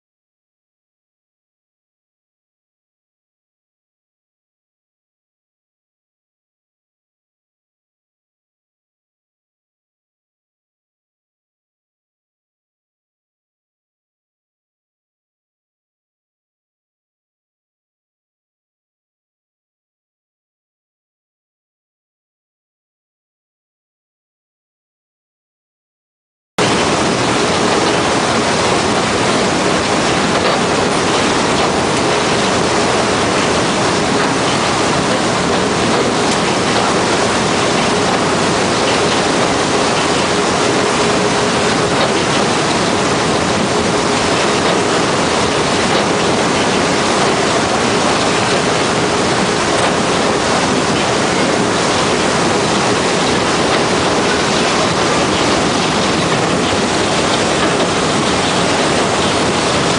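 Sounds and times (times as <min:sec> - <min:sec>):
rushing water: 0:26.6 - 0:59.9.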